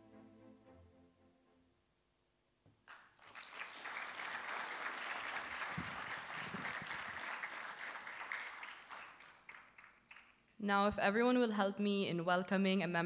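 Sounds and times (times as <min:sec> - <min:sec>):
audience applauding: 0:02.8 - 0:10.4.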